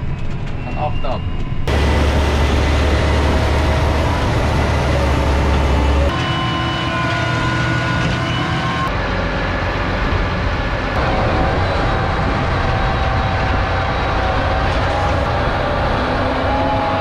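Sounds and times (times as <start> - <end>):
heavy farm machinery running: 1.7 - 17.0.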